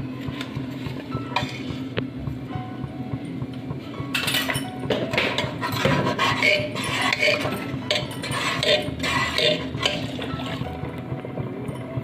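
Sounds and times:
ladle scraping a pot: 0:05.2 - 0:10.7.

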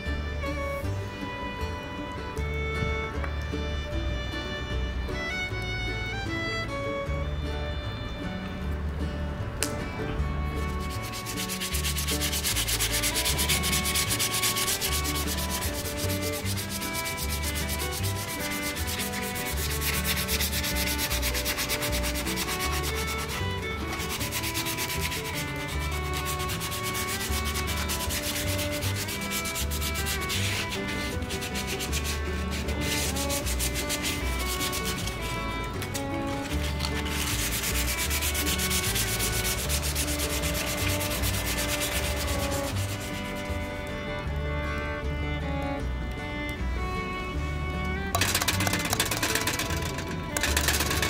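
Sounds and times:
food grating on grater: 0:10.8 - 0:43.5, 0:48.2 - 0:51.0.

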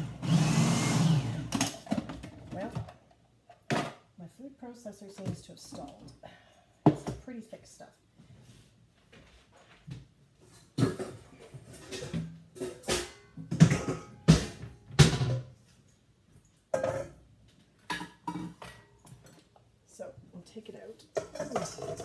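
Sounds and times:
kitchenware knocking and clattering: 0:01.6 - 0:04.1, 0:06.8 - 0:07.2, 0:10.7 - 0:15.6, 0:16.7 - 0:19.4, 0:21.1 - 0:22.0
metal bowl set on counter: 0:16.7 - 0:17.2, 0:17.8 - 0:19.4, 0:21.0 - 0:22.0.

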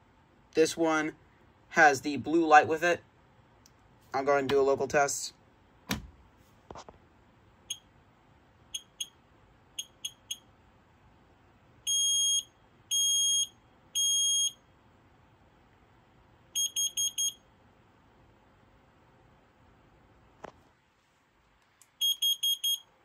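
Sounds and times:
alarm chirps: 0:08.7 - 0:09.2, 0:09.8 - 0:10.5, 0:11.9 - 0:14.6, 0:16.6 - 0:17.4, 0:22.0 - 0:22.9
smoke alarm beeping: 0:08.7 - 0:09.2, 0:09.8 - 0:10.5, 0:11.9 - 0:14.6, 0:16.6 - 0:17.4, 0:22.0 - 0:22.9.

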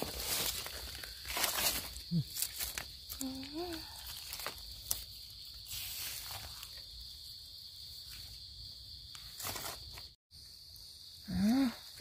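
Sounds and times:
forest insects droning: 0:00.0 - 0:12.0
knife scraping through leaf litter: 0:05.6 - 0:06.8.

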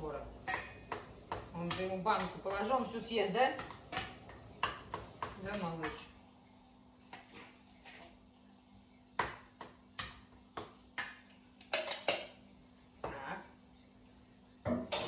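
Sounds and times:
faint steady hum: 0:00.0 - 0:15.0
spoon clinking on steel bowl: 0:00.4 - 0:01.0.

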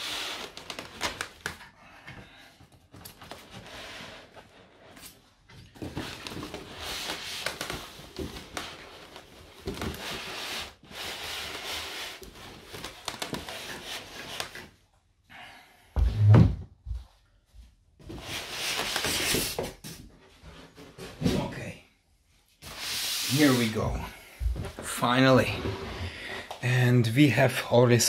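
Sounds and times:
foam scraping against cardboard: 0:22.6 - 0:23.8.

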